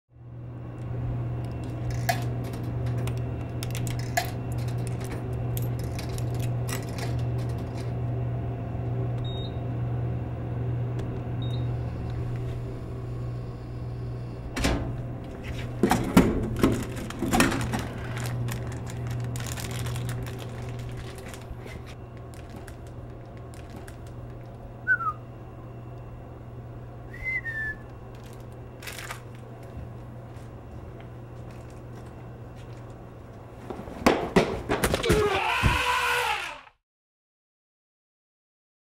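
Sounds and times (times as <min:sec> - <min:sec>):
vending machine humming: 0:00.1 - 0:36.7
coin slot clicks: 0:01.8 - 0:07.9
snack packet clatter and crinkle: 0:16.5 - 0:24.5, 0:28.1 - 0:29.8.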